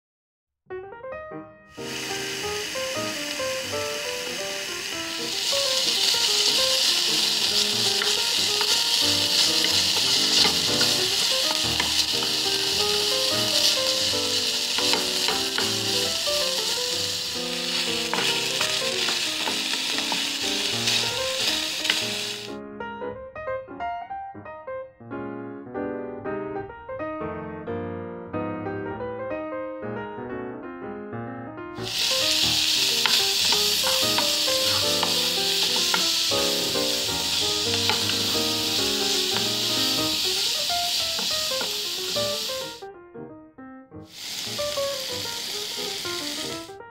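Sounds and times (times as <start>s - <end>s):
melodic background music: 0.8s - 24.9s
meat sizzling in a skillet: 1.7s - 22.6s, 31.8s - 42.8s, 44.1s - 46.8s
wooden spatula scraping: 5.5s - 16.8s, 17.6s - 22.5s, 31.9s - 42.6s.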